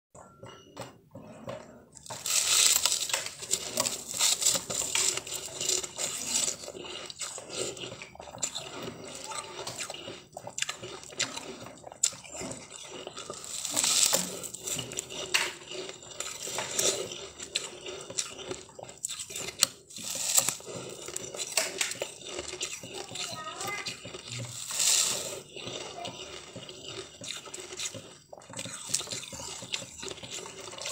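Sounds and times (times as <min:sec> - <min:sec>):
person crunching ice: 0:02.1 - 0:30.9.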